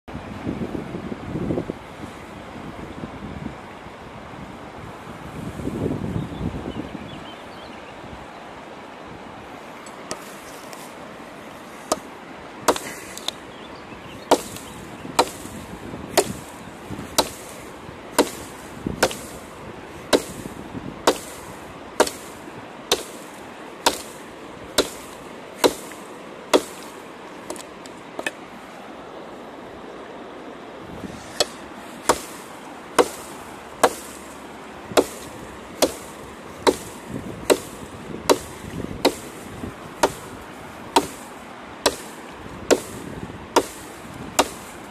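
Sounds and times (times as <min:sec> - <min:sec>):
background hiss: 0:00.5 - 0:44.9
knife chopping into log: 0:11.9 - 0:12.1, 0:12.7 - 0:13.4, 0:14.3 - 0:15.6, 0:16.2 - 0:17.6, 0:18.2 - 0:19.4, 0:20.1 - 0:20.5, 0:21.1 - 0:21.4, 0:22.0 - 0:22.3, 0:22.9 - 0:24.2, 0:24.8 - 0:28.4, 0:31.3 - 0:34.3, 0:35.0 - 0:39.4, 0:40.0 - 0:40.3, 0:41.0 - 0:41.2, 0:41.8 - 0:42.1, 0:43.6 - 0:43.8, 0:44.4 - 0:44.7.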